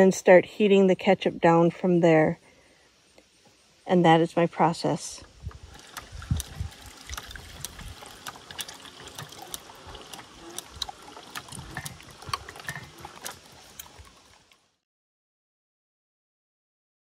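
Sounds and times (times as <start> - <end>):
crank and auger clicking: 5.2 - 14.7.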